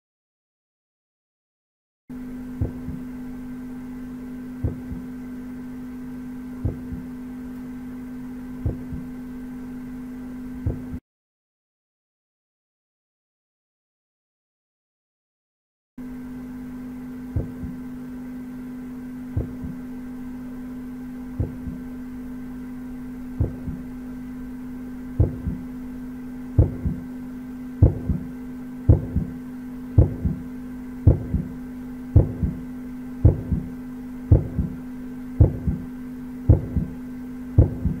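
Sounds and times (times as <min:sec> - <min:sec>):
steady low hum: 0:02.1 - 0:11.0, 0:16.0 - 0:38.0
heartbeat thumps: 0:02.6 - 0:03.1, 0:04.6 - 0:05.2, 0:06.6 - 0:07.2, 0:08.6 - 0:09.1, 0:10.6 - 0:11.0, 0:17.3 - 0:17.8, 0:19.3 - 0:19.8, 0:21.4 - 0:21.9, 0:23.4 - 0:23.9, 0:25.1 - 0:25.7, 0:26.5 - 0:27.1, 0:27.8 - 0:29.4, 0:30.0 - 0:31.6, 0:32.2 - 0:37.0, 0:37.6 - 0:38.0.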